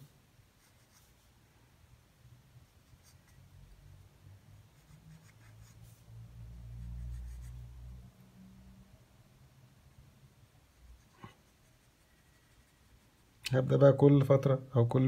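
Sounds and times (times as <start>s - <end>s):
pencil scratching on paper: 0.6s - 1.3s, 2.6s - 3.6s, 4.6s - 6.0s, 6.7s - 7.7s, 10.6s - 13.4s.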